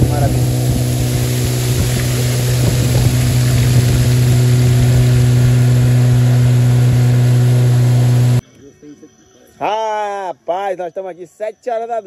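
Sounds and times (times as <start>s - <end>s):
outboard motor running: 0.0s - 8.4s.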